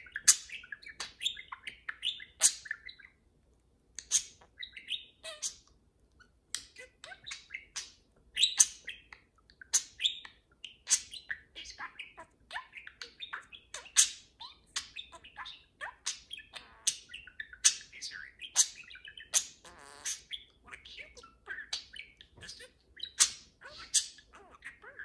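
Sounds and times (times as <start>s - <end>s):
budgerigars chattering: 6.6s - 25.0s.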